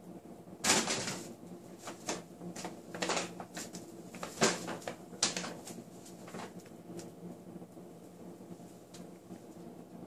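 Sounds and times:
paper bag crinkling and rustling: 0.6 - 6.7.

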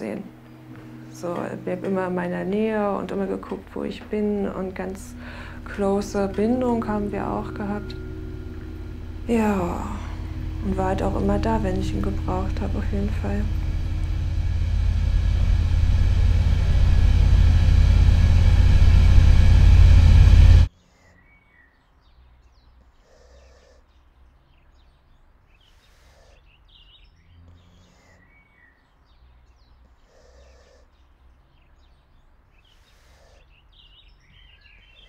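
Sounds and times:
furnace roaring: 0.0 - 20.7
faint outdoor ambience: 0.0 - 35.0.

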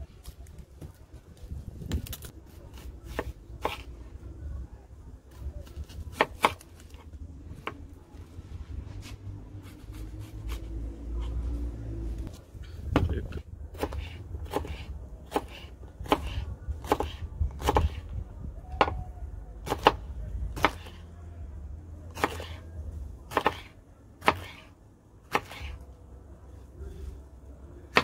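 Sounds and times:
knife chopping on wooden board: 2.7 - 3.9, 6.1 - 6.6, 13.8 - 18.0, 19.7 - 20.0, 20.6 - 21.0, 22.2 - 22.6, 23.3 - 24.7, 25.3 - 25.8
low rumble: 7.0 - 14.4.

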